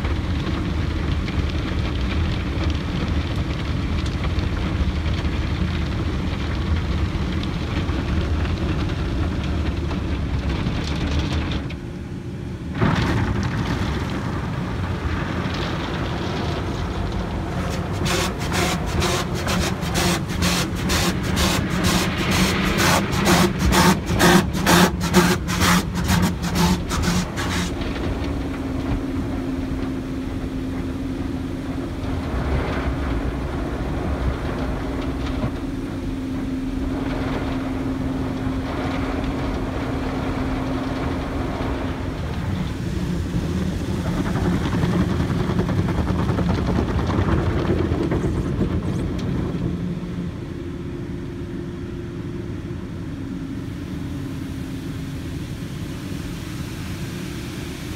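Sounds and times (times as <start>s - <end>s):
car wash machinery hum: 0.0s - 57.9s
water spray: 17.4s - 27.8s
cloth brushes beating on car: 17.5s - 27.8s.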